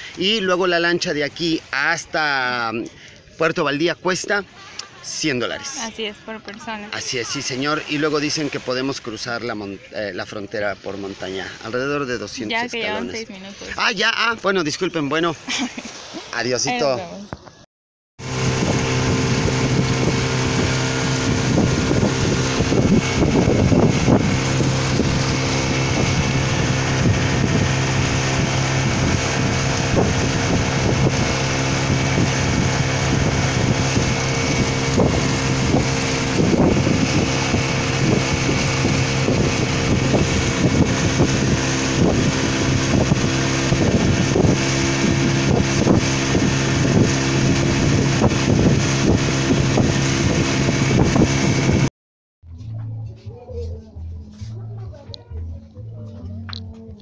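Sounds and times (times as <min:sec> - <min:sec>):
motorboat engine running: 0:18.2 - 0:51.9
wind buffeting microphone: 0:18.2 - 0:51.9.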